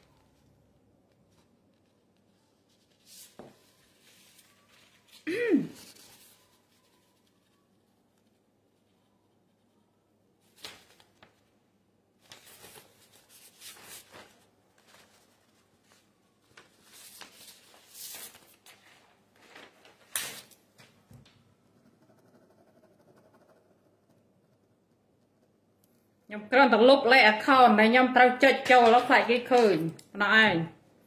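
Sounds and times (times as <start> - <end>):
paper rustling: 1.1 - 8.4, 10.4 - 11.6, 12.2 - 21.3
sharp paper snap: 20.1 - 20.6.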